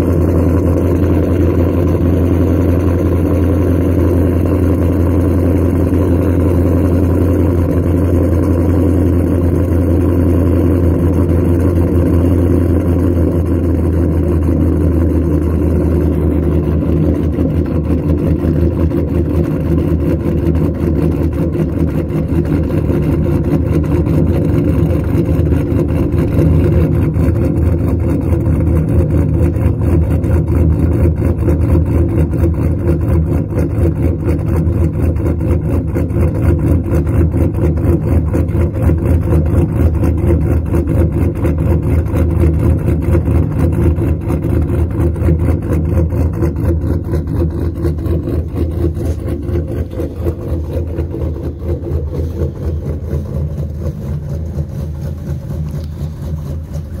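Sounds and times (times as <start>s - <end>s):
truck engine idling: 0.0s - 57.0s.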